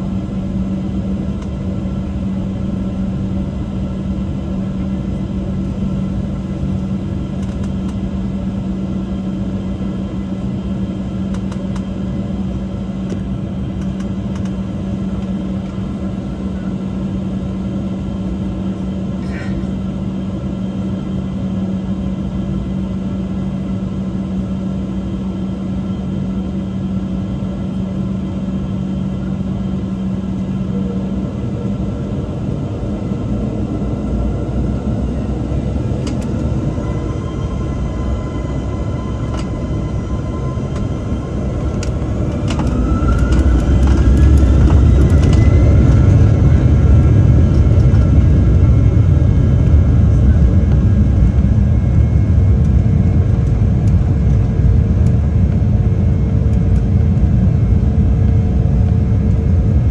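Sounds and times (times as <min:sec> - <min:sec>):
jet engine hum from cabin: 0:00.0 - 0:59.9
jet engine whine and rumble: 0:00.0 - 0:59.9.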